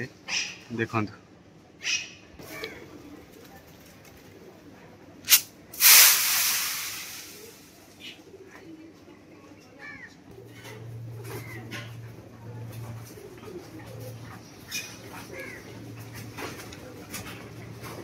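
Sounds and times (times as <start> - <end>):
pigeons cooing: 1.8 - 5.1, 7.2 - 18.0
grain rattling on tin roof: 5.3 - 7.8.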